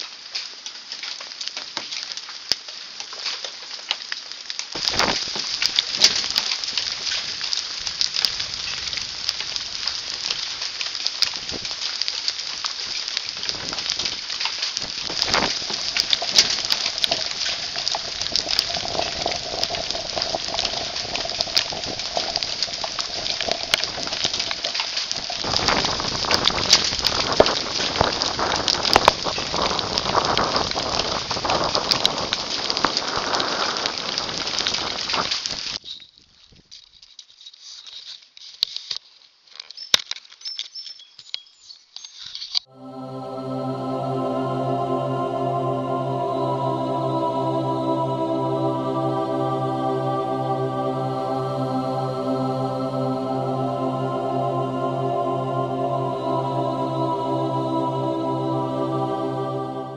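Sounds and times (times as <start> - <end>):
hail and rain pelting leaves: 0.0 - 35.8.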